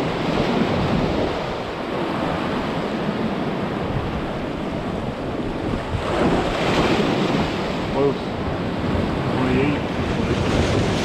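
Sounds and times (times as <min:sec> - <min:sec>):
surf breaking against rocks: 0:03.9 - 0:11.0.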